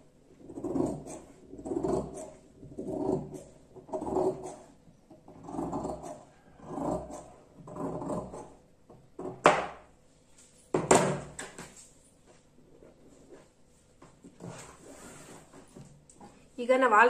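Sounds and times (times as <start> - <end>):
scissors cutting fabric: 0.5 - 4.7, 5.4 - 8.6.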